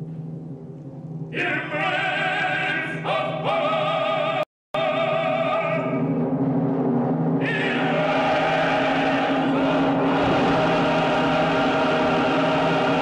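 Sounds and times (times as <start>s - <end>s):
opera chorus singing: 1.4s - 6.1s, 7.4s - 13.0s.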